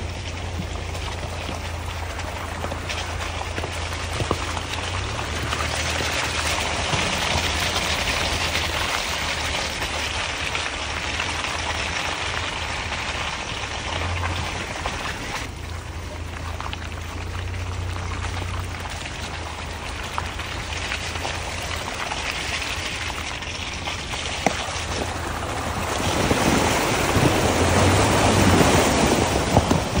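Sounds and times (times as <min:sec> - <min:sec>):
truck engine hum: 0:00.0 - 0:30.0
tyres sloshing through mud: 0:00.0 - 0:30.0.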